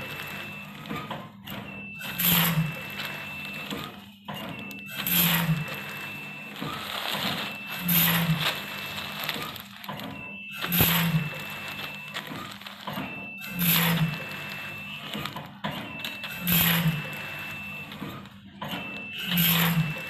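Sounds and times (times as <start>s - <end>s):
foil packets crinkling: 0.0s - 1.0s, 2.2s - 4.1s, 4.8s - 15.5s
high-pitched machine whine: 0.0s - 20.0s
packaging machine hiss: 0.0s - 20.0s.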